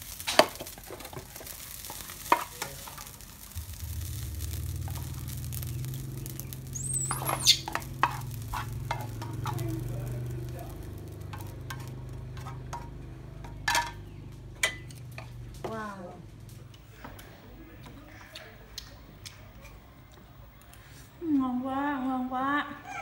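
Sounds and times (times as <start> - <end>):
low hum: 3.0 - 17.7
high chirp: 5.7 - 7.8
plastic spatula scraping frying pan: 7.1 - 9.6.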